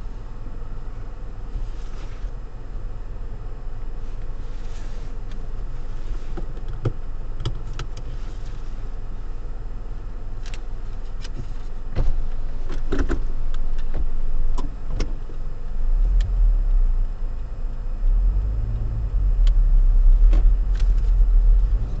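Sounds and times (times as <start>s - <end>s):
car engine and road rumble: 0.0s - 22.0s.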